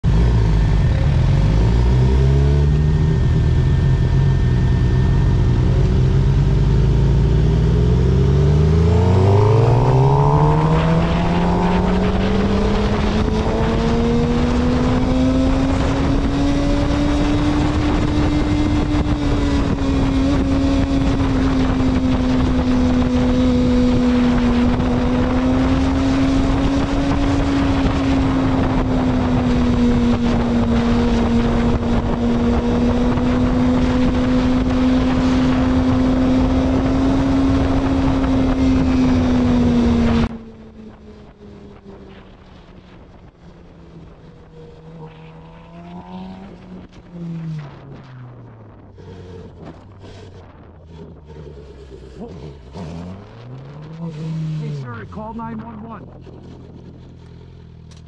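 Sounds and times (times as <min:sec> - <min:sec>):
motorcycle engine: 0:00.0 - 0:58.0
wind rushing: 0:07.5 - 0:40.3.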